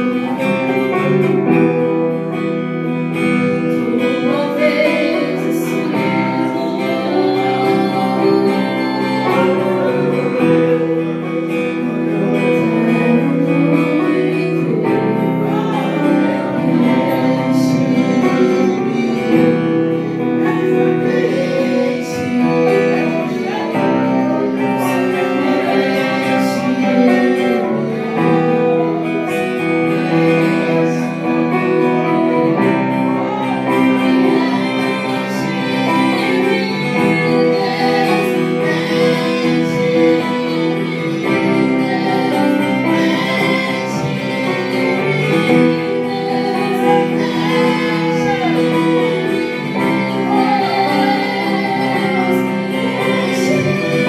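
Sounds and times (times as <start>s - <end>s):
keyboard chords: 0.0s - 54.0s
women singing: 0.0s - 54.0s.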